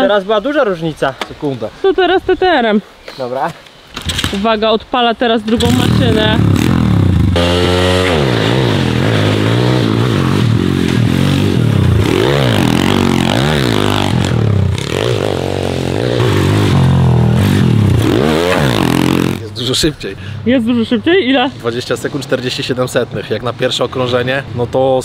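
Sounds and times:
motorbike engine revving: 5.6s - 19.5s.

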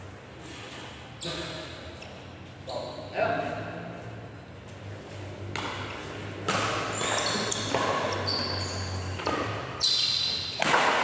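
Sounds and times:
shoes squeaking on court: 4.7s - 10.7s
rackets hitting shuttlecock: 5.5s - 11.0s.

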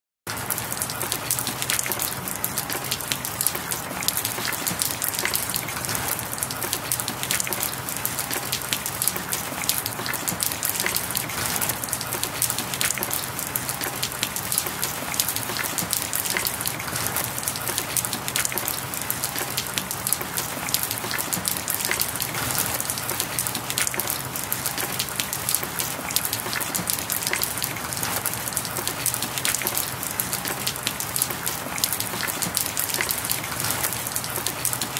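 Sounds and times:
steady rain falling: 0.3s - 34.9s.

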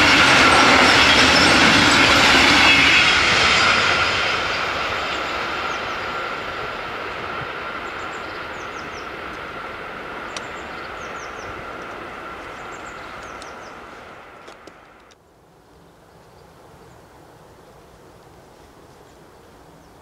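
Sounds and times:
train rolling past: 0.0s - 15.2s.

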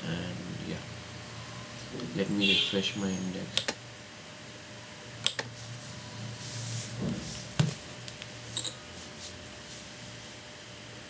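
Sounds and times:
sharp computer clicks: 3.5s - 3.8s, 5.2s - 5.5s.

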